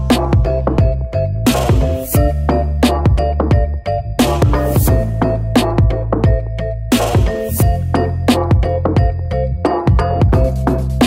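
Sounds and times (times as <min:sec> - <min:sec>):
electronic music with drum beat: 0:00.0 - 0:11.0.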